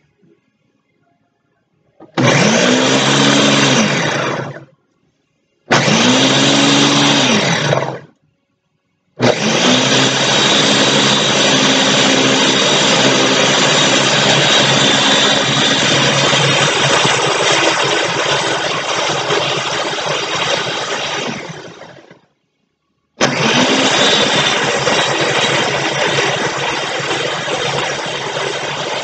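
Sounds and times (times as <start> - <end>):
countertop blender running: 2.0 - 4.7, 5.7 - 8.1, 9.2 - 22.2, 23.2 - 29.0.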